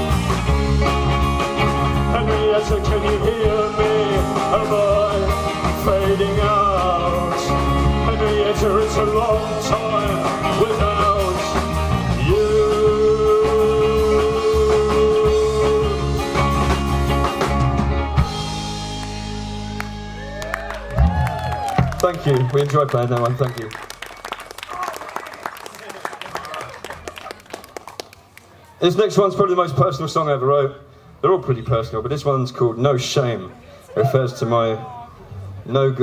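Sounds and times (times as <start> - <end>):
rock band playing live: 0.0 - 22.0.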